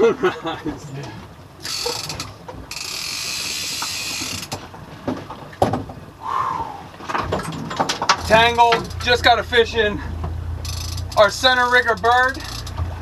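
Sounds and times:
fishing reel drag buzzing: 1.6s - 4.5s, 10.6s - 12.8s.

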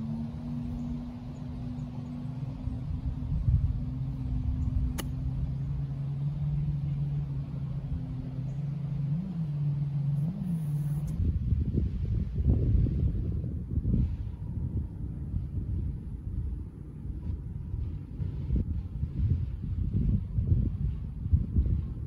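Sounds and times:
low engine hum: 0.0s - 22.0s
wind rumble on microphone: 0.0s - 22.0s
golf club striking ball: 4.8s - 5.4s.

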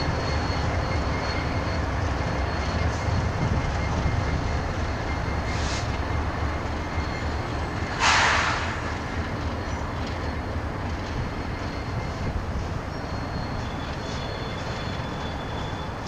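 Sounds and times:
train wheels rumbling on rails: 0.0s - 16.0s
loud hiss: 8.0s - 9.0s.

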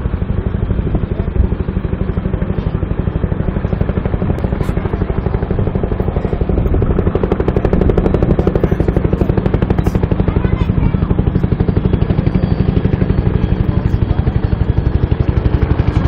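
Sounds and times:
helicopter rotor beating: 0.0s - 16.0s.

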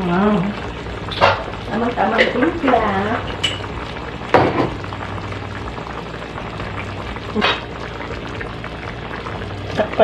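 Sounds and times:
sauce bubbling in pan: 0.0s - 10.0s
knock on pan: 1.1s - 1.5s, 4.3s - 4.8s.

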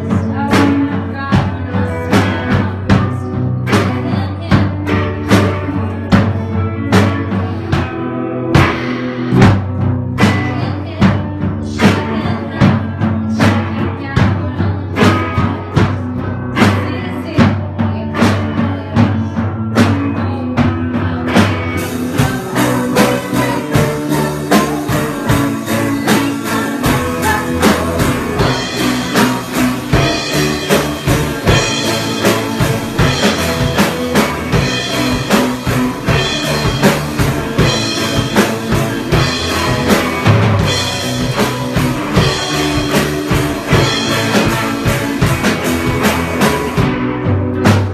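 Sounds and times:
woman singing: 0.0s - 8.0s, 10.2s - 39.9s
rock band playing: 0.0s - 47.9s.

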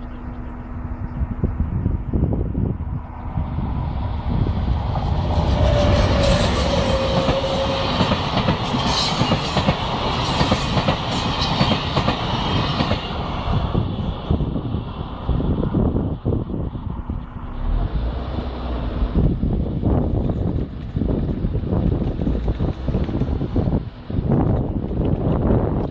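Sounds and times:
train rolling rumble: 0.0s - 25.9s
wheels clacking over rail joints: 5.4s - 13.3s.

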